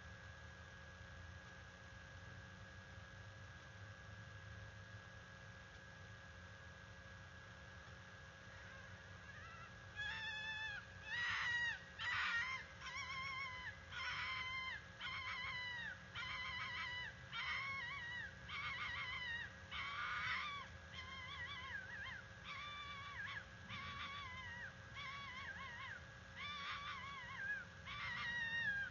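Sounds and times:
fox screaming: 8.5s - 28.9s.

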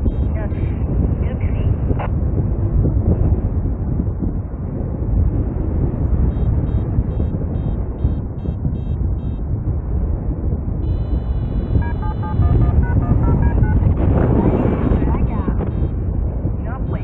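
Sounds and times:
variometer beeping: 0.0s - 0.3s, 6.2s - 9.5s, 10.8s - 16.0s
wind rushing over microphone: 0.0s - 17.0s
steady high electronic tone: 10.8s - 16.0s.

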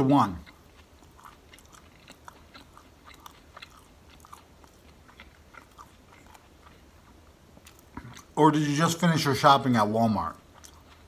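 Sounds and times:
mouth chewing wet clicks: 0.0s - 8.4s, 10.3s - 11.0s.

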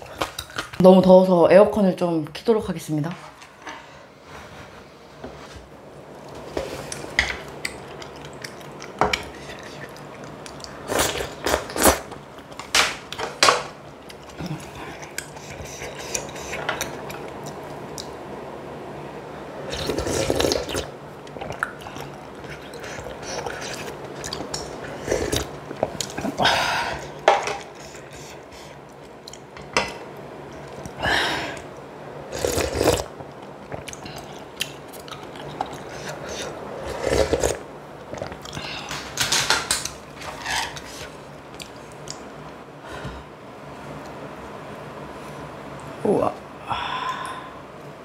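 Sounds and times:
chewing: 6.3s - 12.6s, 19.7s - 26.4s, 32.4s - 39.0s
slurping noodles: 19.7s - 20.9s, 32.3s - 33.1s, 35.6s - 37.6s.

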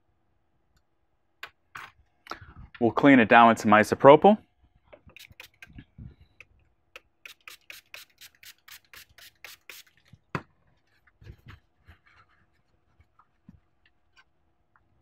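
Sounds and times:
spray bottle spritzing: 5.2s - 5.7s, 7.2s - 10.1s.

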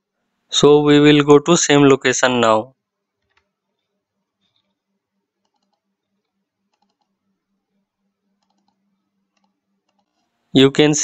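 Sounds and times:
faint low hum: 0.0s - 11.0s
faint computer mouse clicks: 5.4s - 7.2s, 8.4s - 10.3s.

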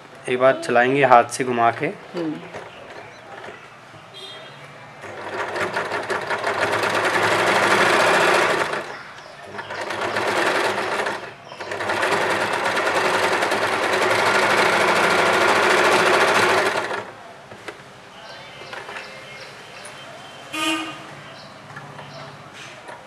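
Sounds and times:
electric sewing machine running: 5.1s - 8.9s, 9.5s - 17.1s.

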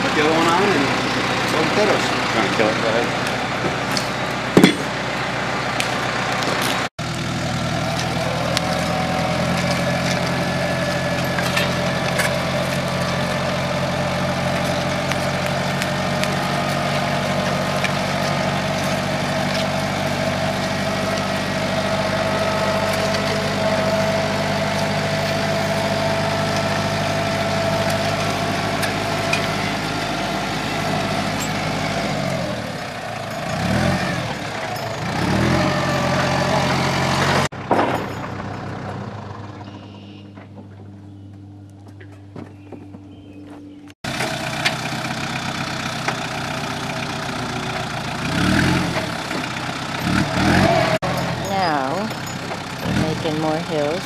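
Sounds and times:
tractor engine running: 0.0s - 54.0s
whine over engine: 38.8s - 44.0s.

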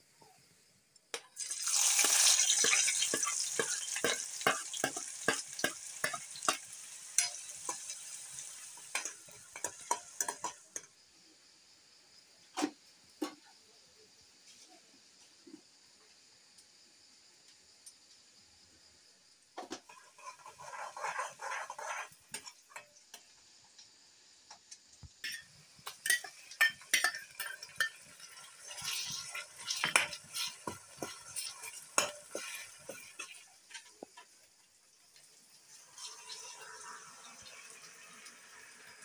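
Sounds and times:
food sizzling in hot oil: 0.2s - 13.4s, 19.6s - 39.0s
spoon scraping metal pan: 2.0s - 10.9s, 19.8s - 22.9s, 25.2s - 34.1s.

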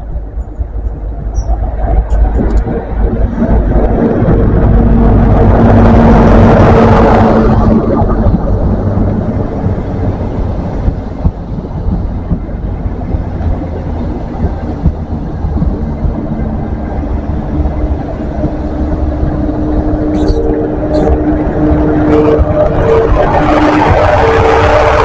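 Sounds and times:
diesel engine hum: 0.0s - 25.0s
train wheels rumbling on rail: 0.0s - 25.0s.

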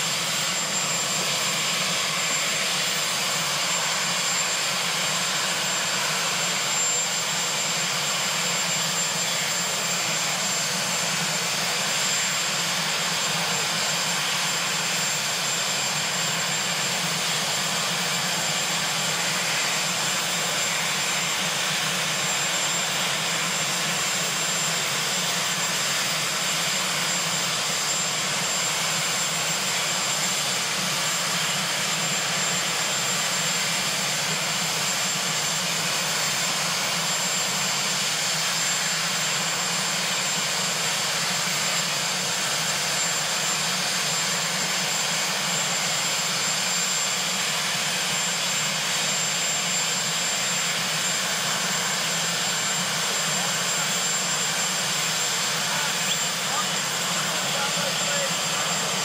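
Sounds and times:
helicopter turbine engines running: 0.0s - 59.0s.

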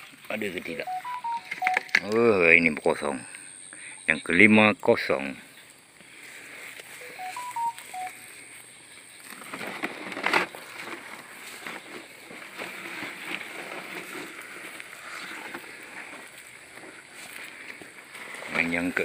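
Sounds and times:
loud crunch: 9.2s - 18.9s
footsteps through wet grass: 9.2s - 19.0s.

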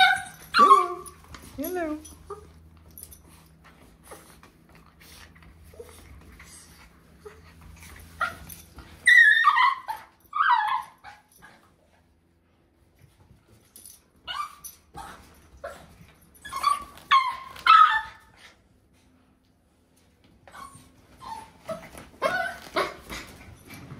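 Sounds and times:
small dog whining and yipping: 0.0s - 1.2s, 8.1s - 11.6s, 14.2s - 18.5s, 20.4s - 23.5s.

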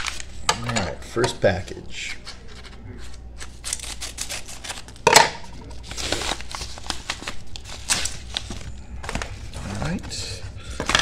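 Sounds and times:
paper crinkling and rustling: 0.0s - 0.4s, 5.6s - 11.0s
scissors cutting paper: 2.3s - 5.0s.

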